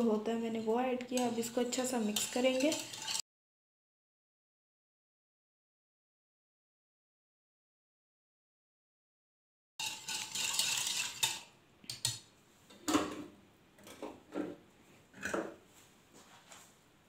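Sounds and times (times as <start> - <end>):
utensils and dishes clinking: 1.2 - 3.2, 9.8 - 12.2
whisk clattering in ceramic bowl: 1.2 - 3.2, 9.8 - 12.2.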